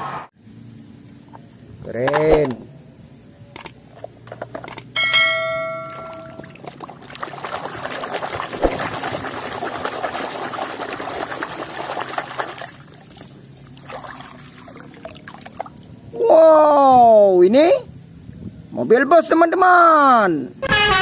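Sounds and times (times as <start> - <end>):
water splashing in a plastic basin: 5.9 - 16.0
hand scrubbing toy underwater: 6.3 - 15.8.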